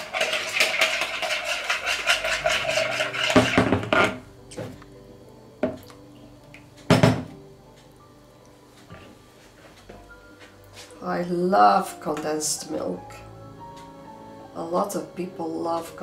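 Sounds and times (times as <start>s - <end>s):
utensils clattering against bowl: 0.0s - 4.2s.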